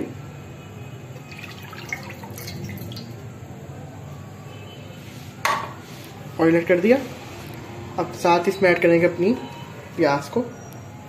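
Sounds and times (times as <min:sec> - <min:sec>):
oil trickling and splashing into pan: 0:01.2 - 0:03.2.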